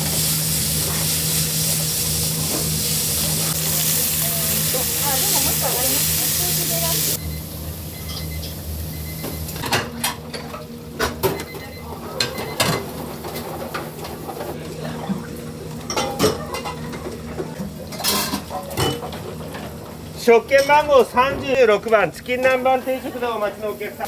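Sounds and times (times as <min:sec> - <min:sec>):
dishes and utensils clinking: 0:08.0 - 0:08.6, 0:09.2 - 0:19.8.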